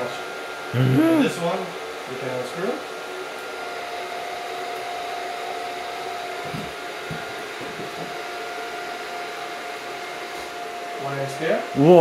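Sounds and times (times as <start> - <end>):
faint hum: 0.7 - 1.4.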